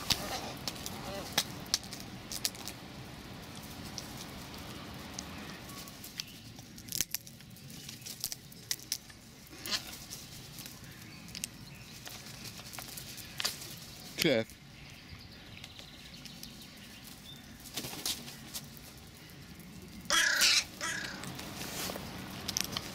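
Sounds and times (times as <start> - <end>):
crow pecking taps: 20.1 - 21.5.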